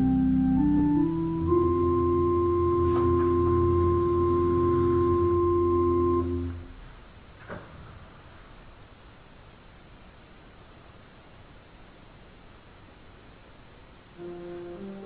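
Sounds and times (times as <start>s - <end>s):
church organ chord: 0.0s - 6.8s, 14.2s - 15.0s.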